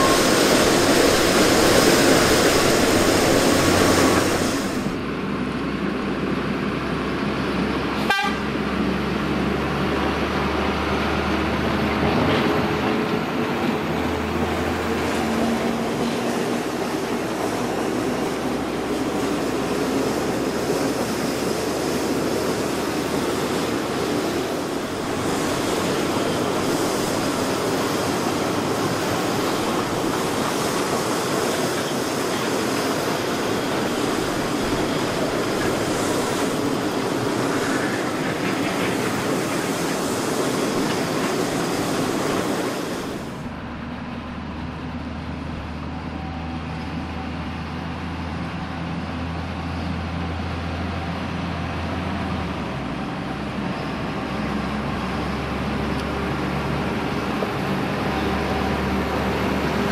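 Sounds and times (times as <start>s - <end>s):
wheels clattering on rails: 0.0s - 5.0s, 11.0s - 45.7s
diesel locomotive engine running: 0.0s - 59.9s.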